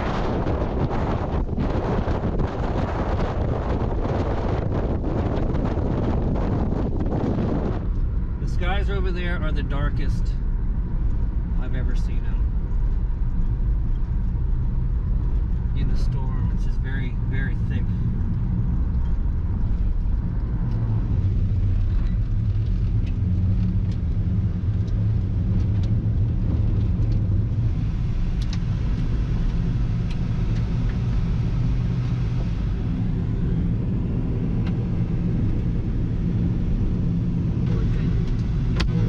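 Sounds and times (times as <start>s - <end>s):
car road noise rumble: 0.0s - 39.0s.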